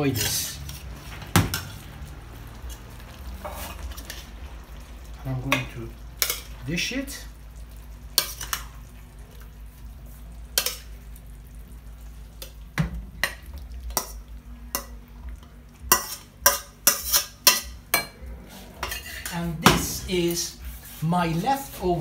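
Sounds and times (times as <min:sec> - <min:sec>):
metal spoon scraping steel wok: 0:00.0 - 0:01.8, 0:02.7 - 0:04.3, 0:15.9 - 0:19.6.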